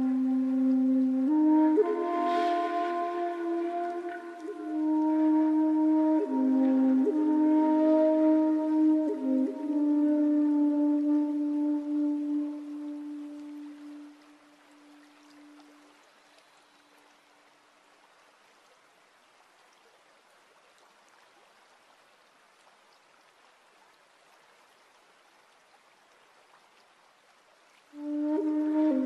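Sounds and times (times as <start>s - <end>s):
low musical tone: 0.0s - 15.8s
flute music: 0.0s - 15.9s, 27.9s - 29.0s
stream trickling over stones: 0.0s - 29.0s.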